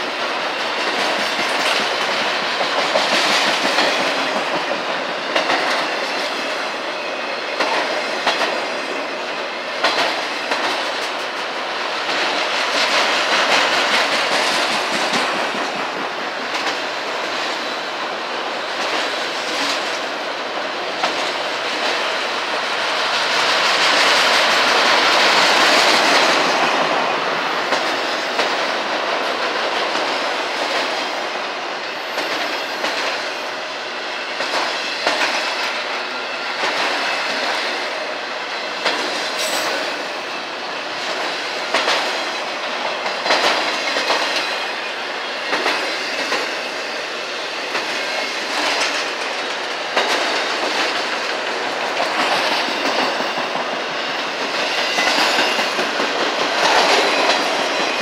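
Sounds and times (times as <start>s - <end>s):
train wheels on rail: 0.0s - 58.0s
wheels clicking over rail joints: 47.7s - 58.0s.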